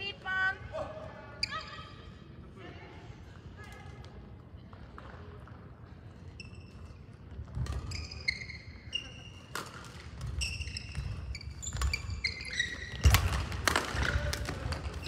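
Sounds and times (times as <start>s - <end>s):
shoes squeaking on court floor: 5.8s - 13.6s.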